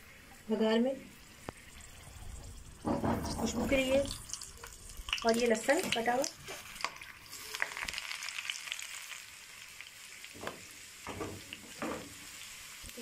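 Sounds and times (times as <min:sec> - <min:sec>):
garlic sizzling in hot oil: 0:00.1 - 0:13.0.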